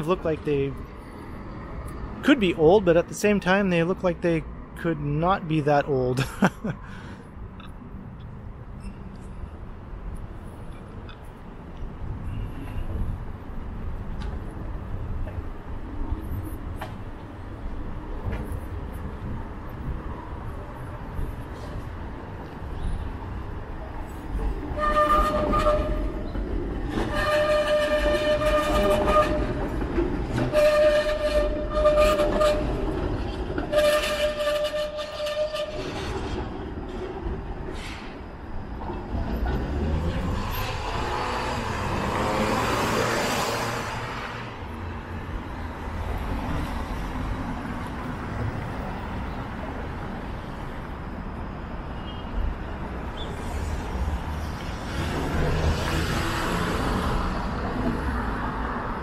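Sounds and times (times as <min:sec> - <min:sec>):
street traffic rumble: 0:00.0 - 0:59.0
horn blasts: 0:24.8 - 0:26.2, 0:27.0 - 0:29.6, 0:30.4 - 0:32.8, 0:33.6 - 0:35.9
vehicle passing: 0:39.4 - 0:44.8, 0:54.7 - 0:58.6.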